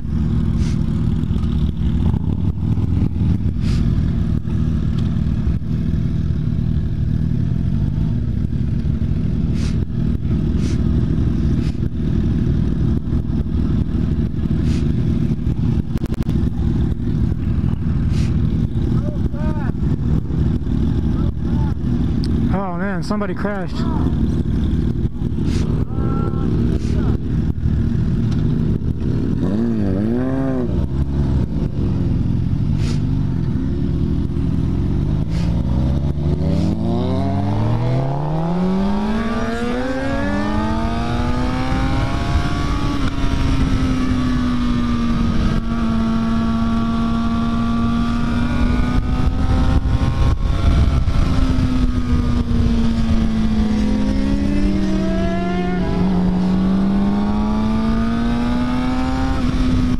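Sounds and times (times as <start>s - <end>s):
motorcycle engine revving: 0.0s - 59.9s
wind noise: 35.4s - 59.9s.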